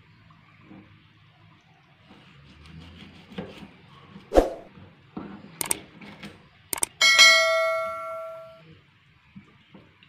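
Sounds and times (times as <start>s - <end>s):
sharp clicks: 6.8s - 7.0s
bell ding: 6.8s - 8.6s.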